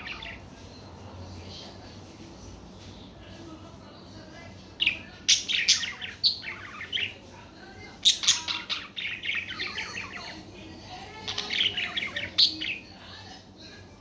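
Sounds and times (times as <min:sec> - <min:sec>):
budgerigars chirping and warbling: 0:00.0 - 0:01.1, 0:04.6 - 0:13.4.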